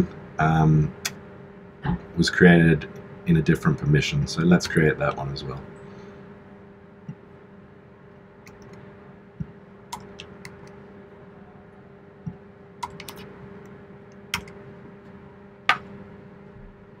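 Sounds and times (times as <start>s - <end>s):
faint steady hum: 0.0s - 17.0s
keyboard keys tapping: 12.2s - 13.2s.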